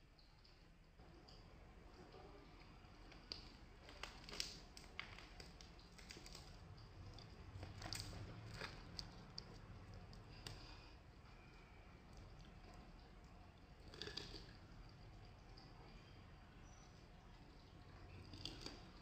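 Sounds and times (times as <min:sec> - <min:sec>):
crispy batter crackling and snapping: 0:02.6 - 0:10.9, 0:18.0 - 0:19.0.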